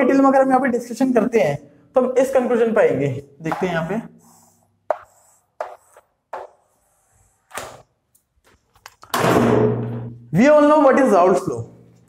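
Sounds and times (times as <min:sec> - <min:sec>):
chalk tapping on a chalkboard: 0:03.5 - 0:06.9
chalk scraping on a chalkboard: 0:04.2 - 0:07.4.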